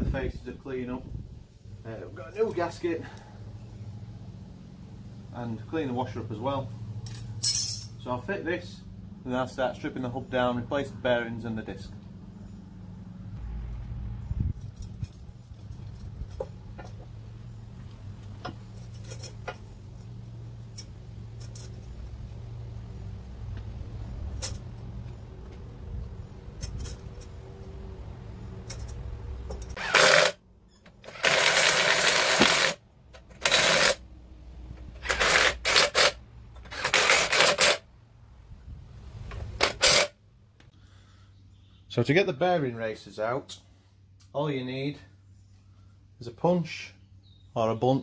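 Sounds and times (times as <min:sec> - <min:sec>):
impact driver bursts: 0:29.8 - 0:30.4, 0:31.0 - 0:32.8, 0:33.4 - 0:34.0, 0:35.0 - 0:37.8, 0:39.6 - 0:40.2.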